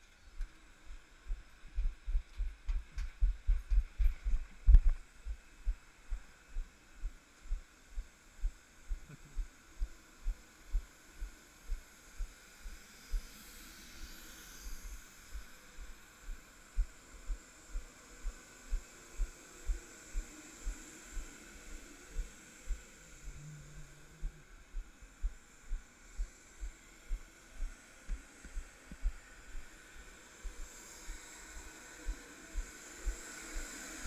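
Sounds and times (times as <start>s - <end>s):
faint steady hiss: 0.0s - 34.0s
thin high whine: 0.0s - 34.0s
footsteps walking: 1.3s - 5.8s.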